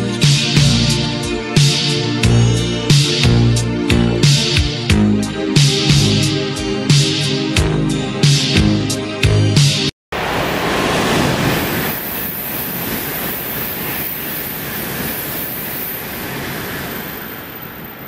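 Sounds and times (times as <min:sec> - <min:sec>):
train passing with rushing air: 0:10.2 - 0:18.0.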